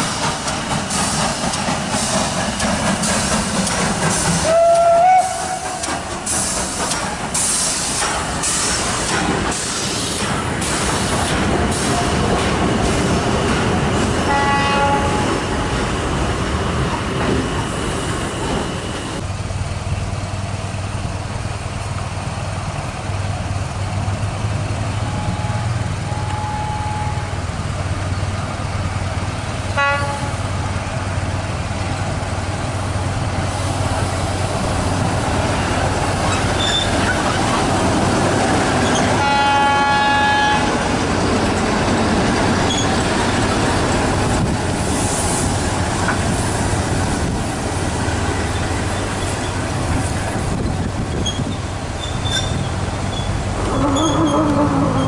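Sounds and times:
diesel locomotive engine: 0:00.0 - 0:55.0
loud horn blast: 0:14.3 - 0:15.4, 0:29.8 - 0:30.4, 0:39.2 - 0:40.8.

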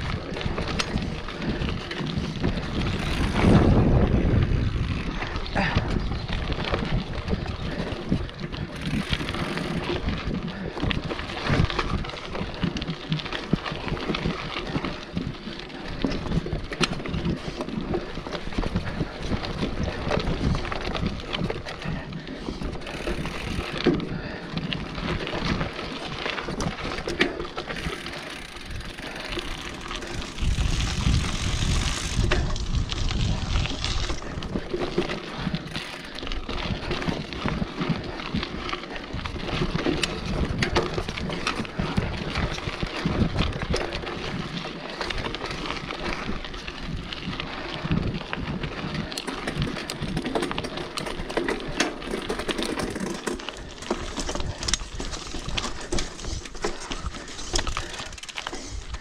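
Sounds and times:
wind on microphone: 0:00.0 - 0:12.8, 0:27.7 - 0:50.8
bike rattling and knocking: 0:00.0 - 0:59.0
bike tyres rolling over dirt and stones: 0:00.0 - 0:59.0.

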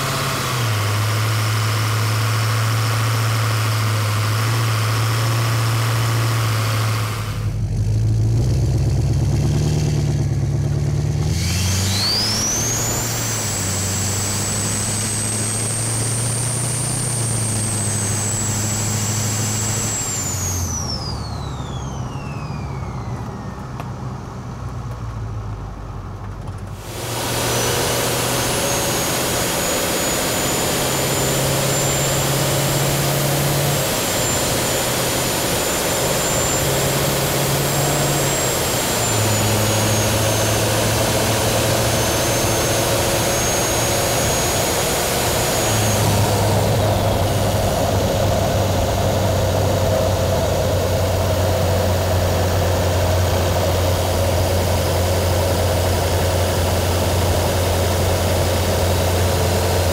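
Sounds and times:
diesel engine running: 0:00.0 - 0:59.9
high turbo whistle: 0:11.3 - 0:24.1, 0:26.8 - 0:59.9.

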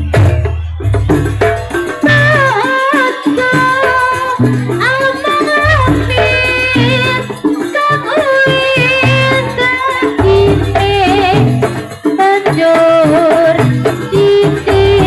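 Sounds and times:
gamelan melody: 0:00.0 - 0:15.0
hand drum strokes: 0:00.0 - 0:15.0.

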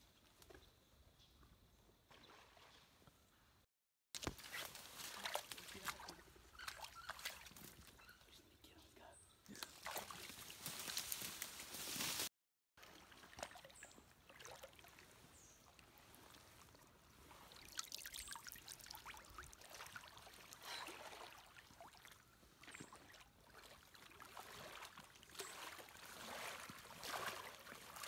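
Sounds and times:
water sloshing from wading: 0:04.2 - 0:08.0, 0:12.8 - 0:28.0.

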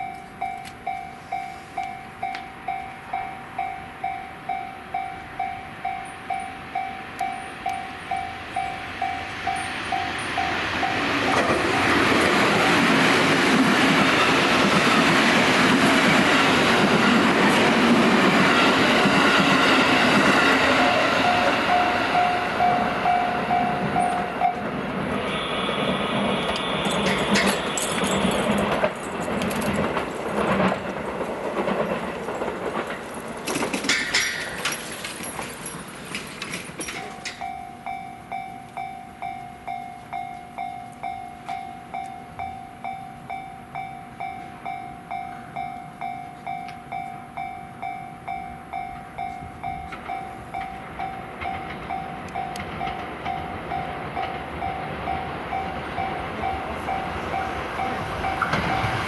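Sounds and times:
approaching train rumble: 0:00.0 - 0:59.0
level crossing warning bell: 0:00.0 - 0:59.0
train rumbling with wheel clicks: 0:00.0 - 0:59.0.

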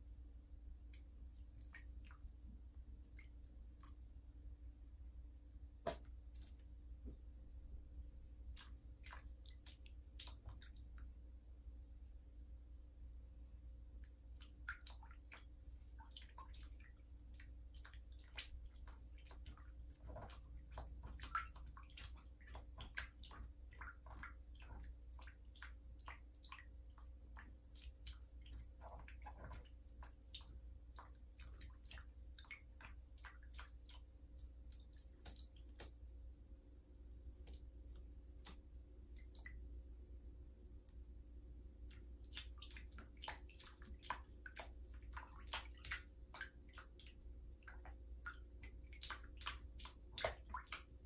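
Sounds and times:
cat splashing bathwater: 0:00.8 - 0:04.5, 0:05.7 - 0:12.0, 0:13.9 - 0:36.3, 0:36.9 - 0:40.0, 0:40.8 - 0:51.0.

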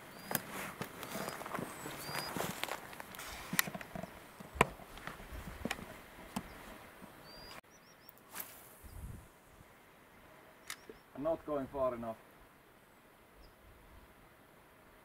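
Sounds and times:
soft outdoor hush: 0:00.0 - 0:15.0
high bird chirps: 0:01.0 - 0:02.4, 0:07.2 - 0:08.2.

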